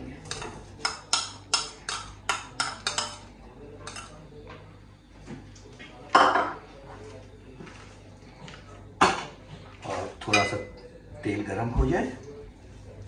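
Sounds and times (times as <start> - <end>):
metal spoon clinking on pan: 0.3 - 4.2.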